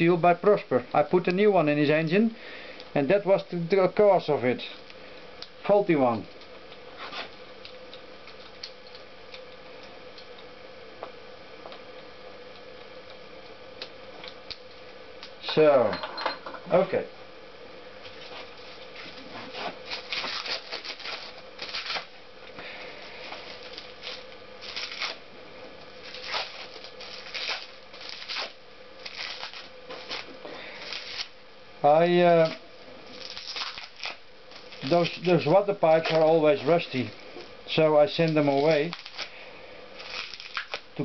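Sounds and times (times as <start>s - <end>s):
faint steady hum: 0.0s - 41.0s
plastic bag crinkling: 19.8s - 22.2s, 23.4s - 25.2s, 26.0s - 31.3s, 32.4s - 37.2s, 38.2s - 39.4s, 40.0s - 40.9s.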